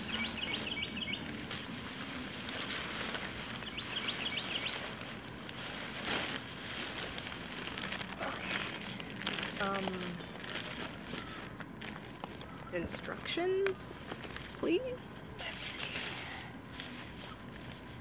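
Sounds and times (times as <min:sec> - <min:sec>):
bird chirping: 0:00.0 - 0:01.7, 0:03.6 - 0:04.9
tent fabric rustling and flapping: 0:00.0 - 0:12.5.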